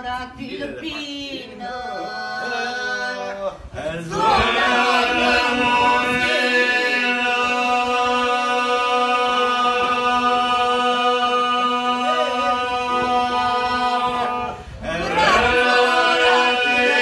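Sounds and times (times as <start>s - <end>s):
voices singing a melody: 0.0s - 17.0s
men singing a drone: 1.6s - 17.0s.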